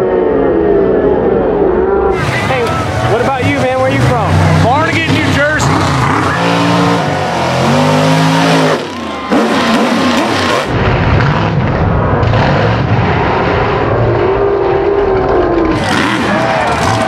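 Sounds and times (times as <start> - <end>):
monster truck engine roaring: 0.0 - 17.0.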